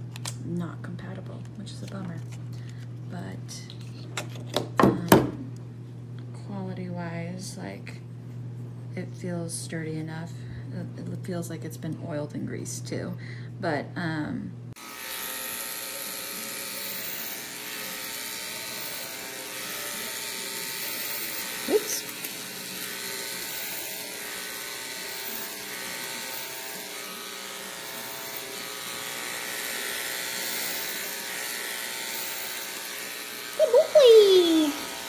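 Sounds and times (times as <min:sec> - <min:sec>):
electric clipper running: 0:14.8 - 0:35.0.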